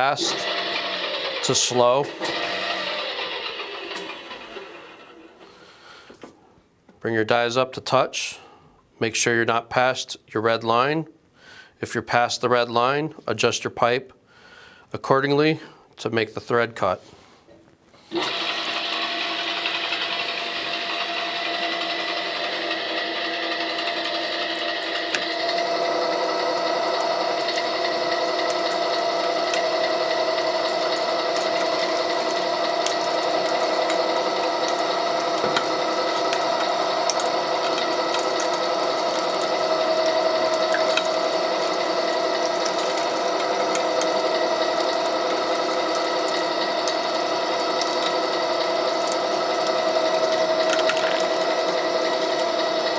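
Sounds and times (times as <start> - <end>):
pipe threading machine whine: 0.0 - 6.2, 18.1 - 52.9.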